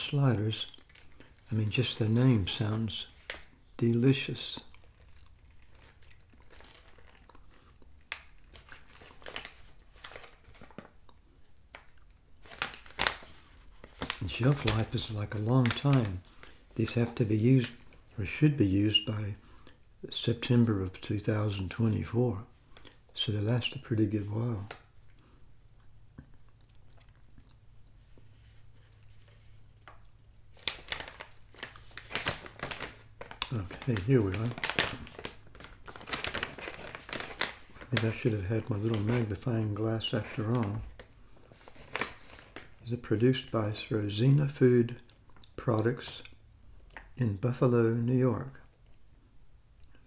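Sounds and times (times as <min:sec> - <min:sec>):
plastic bag crinkling: 0:00.0 - 0:11.1, 0:11.7 - 0:18.4, 0:28.4 - 0:43.9.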